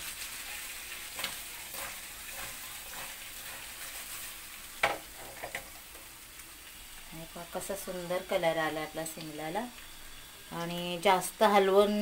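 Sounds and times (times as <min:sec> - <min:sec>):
peppers sizzling in hot oil: 0:00.0 - 0:12.0.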